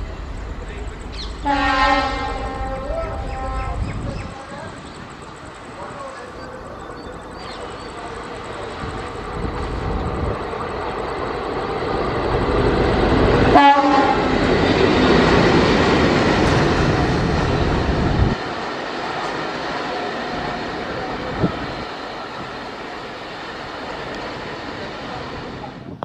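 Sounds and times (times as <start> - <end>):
diesel locomotive passing: 0.0 - 26.0
train horn blast: 1.4 - 3.8, 13.4 - 14.4.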